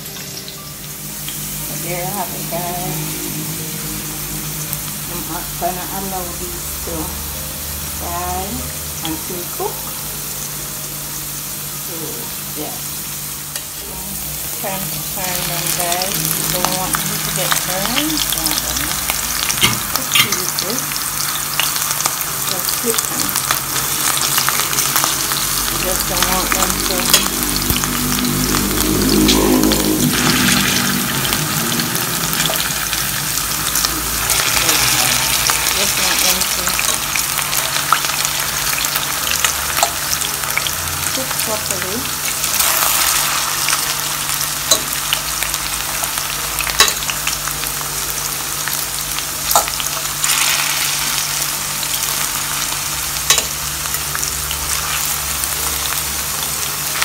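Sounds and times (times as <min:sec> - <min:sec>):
deep-frying oil sizzle: 0:00.0 - 0:57.0.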